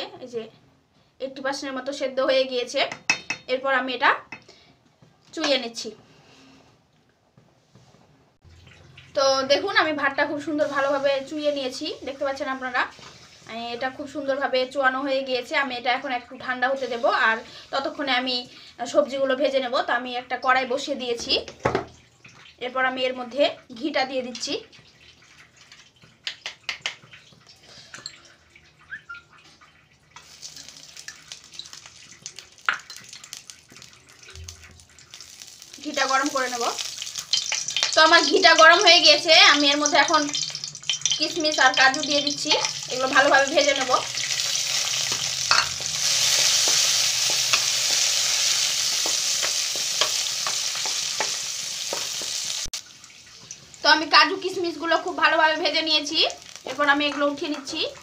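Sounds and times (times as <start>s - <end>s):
ghee sizzling in pan: 9.1s - 18.3s, 30.2s - 58.0s.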